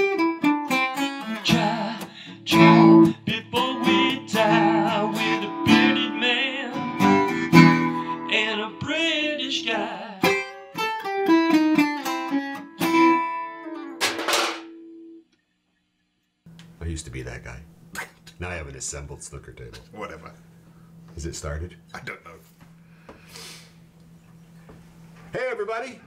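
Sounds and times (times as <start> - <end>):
acoustic guitar: 0.0 - 15.0
man singing: 1.4 - 10.4.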